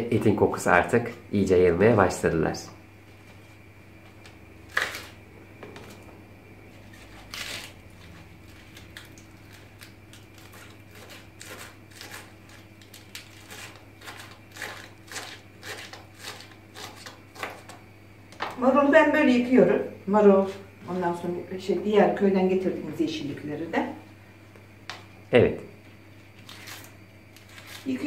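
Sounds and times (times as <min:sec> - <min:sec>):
knife chopping lettuce: 0:04.7 - 0:05.2, 0:06.9 - 0:17.8.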